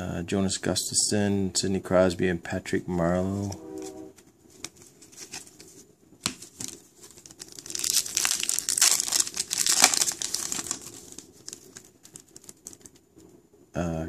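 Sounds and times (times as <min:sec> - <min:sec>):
foil wrapper tearing and crinkling: 0:06.3 - 0:13.0.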